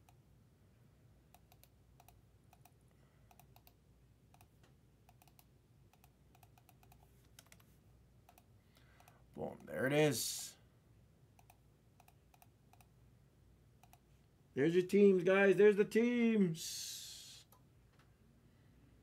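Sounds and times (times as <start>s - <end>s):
typing on a keyboard: 1.3s - 4.5s, 5.1s - 7.7s, 11.4s - 12.9s.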